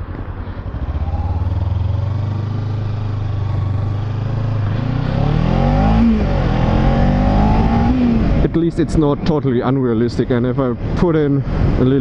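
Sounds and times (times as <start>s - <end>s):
motorcycle engine pulling away: 0.6s - 8.1s.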